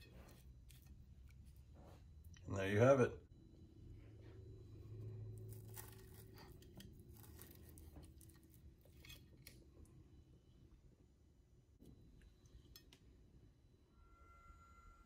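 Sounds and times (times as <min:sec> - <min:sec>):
fork crunching through crispy crust: 0:05.4 - 0:09.6.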